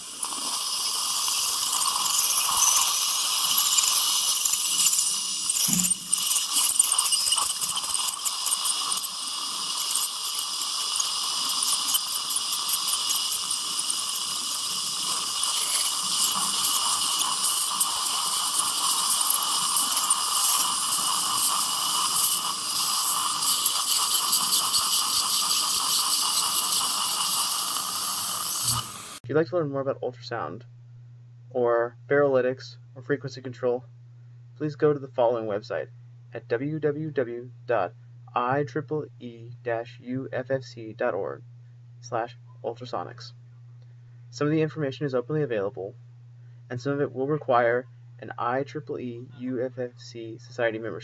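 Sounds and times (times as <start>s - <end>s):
suction rattling crackle: 0.0s - 29.2s
surgical handpiece whining: 0.0s - 29.2s.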